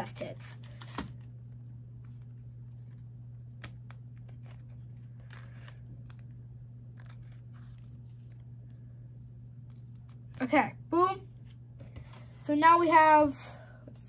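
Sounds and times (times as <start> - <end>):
low hum: 0.0 - 14.0
trading cards rustling: 2.0 - 8.8.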